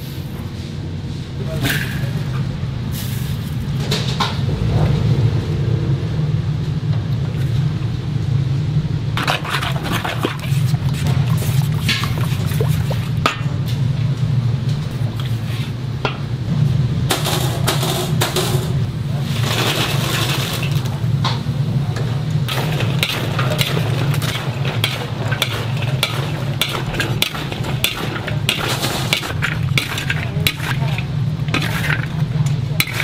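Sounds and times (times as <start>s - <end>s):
steady low hum: 0.0s - 19.4s, 20.6s - 33.0s
metal spatulas scraping a wok: 22.5s - 33.0s.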